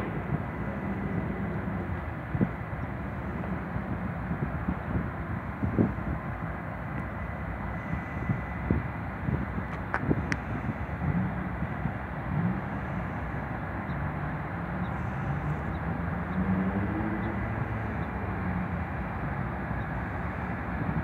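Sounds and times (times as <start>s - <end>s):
diesel engine drone: 0.0s - 21.0s.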